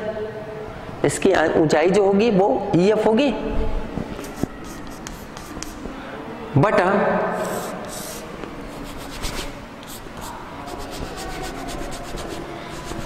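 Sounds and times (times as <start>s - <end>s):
chalk writing on blackboard: 4.2s - 6.0s, 7.4s - 13.0s.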